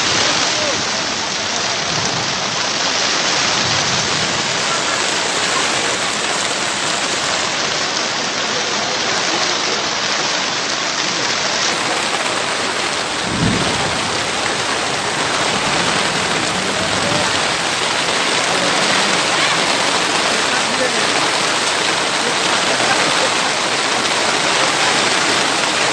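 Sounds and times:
heavy rain pouring: 0:00.0 - 0:25.9
low rumble of thunder: 0:13.2 - 0:17.6.

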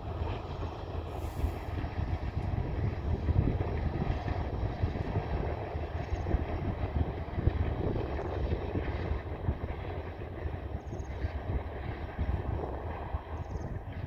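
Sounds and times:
distant locomotive rumble: 0:00.0 - 0:14.0.

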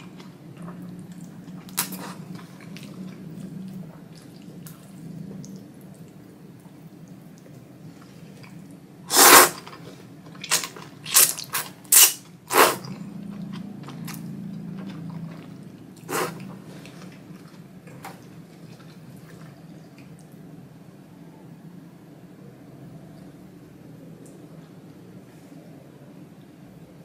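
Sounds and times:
soft chewing: 0:00.0 - 0:08.8, 0:09.6 - 0:20.4
noodles slurping: 0:08.4 - 0:19.7.

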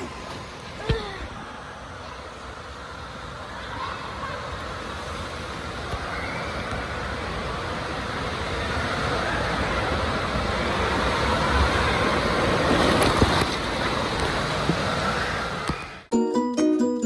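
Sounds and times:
water rushing down slide: 0:00.0 - 0:16.1
plucked background music: 0:16.1 - 0:17.0.

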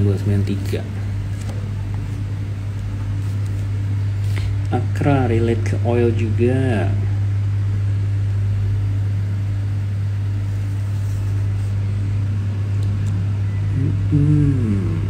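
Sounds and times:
low hum: 0:00.0 - 0:15.0.

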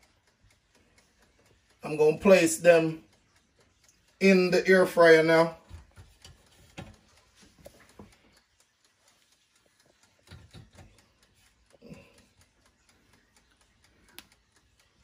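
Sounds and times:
faint knocks and taps: 0:05.6 - 0:08.2, 0:09.9 - 0:11.0.

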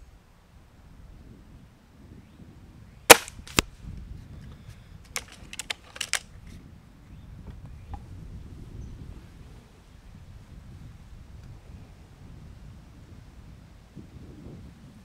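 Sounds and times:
air rifle shot crack: 0:03.1 - 0:03.6
metallic clicks of rifle cocking: 0:05.1 - 0:06.3.

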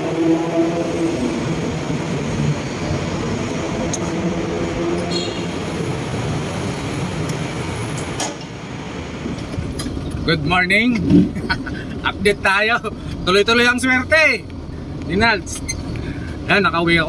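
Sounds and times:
heavy vehicle engines rumbling: 0:00.0 - 0:17.0.

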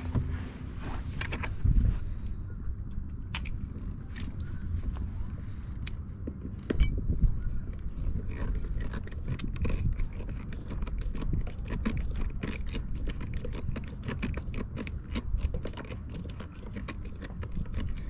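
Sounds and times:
low steady rumble: 0:00.0 - 0:18.0
screw scraping and crunching: 0:07.7 - 0:18.0.

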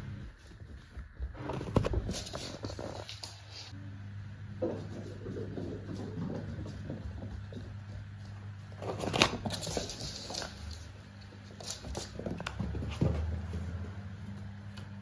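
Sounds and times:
faint low hum: 0:00.0 - 0:15.0
cat paws scampering on floor: 0:00.1 - 0:03.7, 0:04.6 - 0:14.9.

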